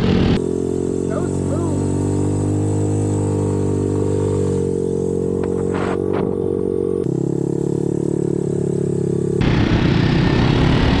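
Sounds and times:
off-road vehicle engine running: 0:00.0 - 0:11.0.

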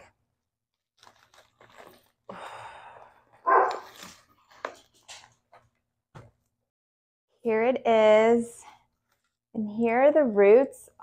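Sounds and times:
plastic pot crinkling and scraping: 0:00.8 - 0:02.3, 0:03.3 - 0:05.8
dog barking: 0:03.4 - 0:03.9.

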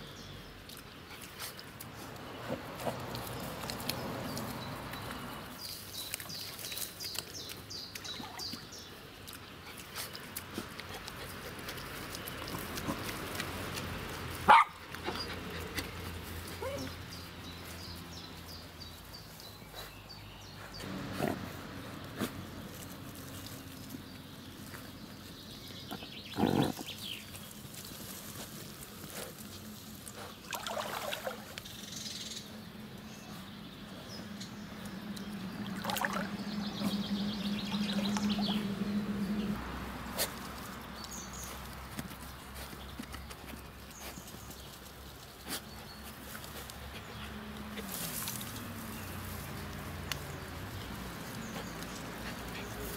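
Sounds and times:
dogs digging in mud: 0:00.1 - 0:52.9
fern stalks rustling: 0:21.6 - 0:32.0, 0:36.3 - 0:52.9.

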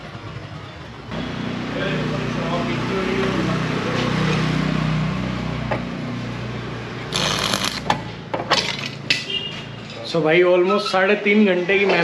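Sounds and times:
electrical hum: 0:07.1 - 0:07.9
welding arc crackling: 0:07.1 - 0:07.9.

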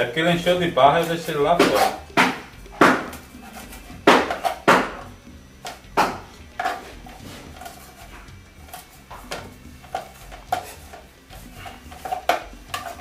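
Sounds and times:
knife chopping on plastic board: 0:01.6 - 0:05.1, 0:05.7 - 0:06.9.

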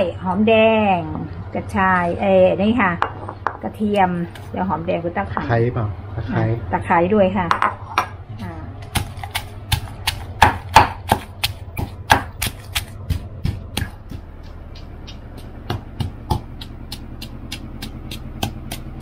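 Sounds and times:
pestle pounding in a mortar: 0:08.8 - 0:19.0.

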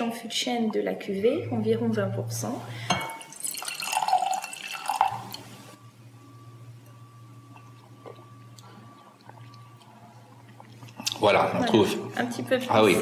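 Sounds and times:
faint room hum: 0:00.0 - 0:13.0
wine pouring into a glass: 0:02.7 - 0:05.8.

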